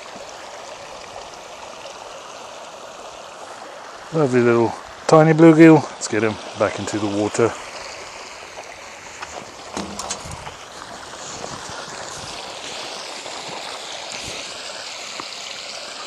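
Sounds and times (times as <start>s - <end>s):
water pouring into a pond: 0.0s - 16.0s.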